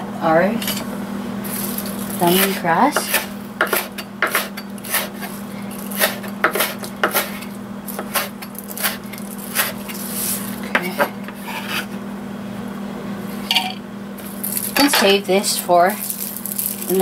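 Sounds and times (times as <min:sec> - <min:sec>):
steady low hum: 0:00.0 - 0:17.0
knife chopping on wooden board: 0:02.3 - 0:05.3, 0:05.9 - 0:09.8.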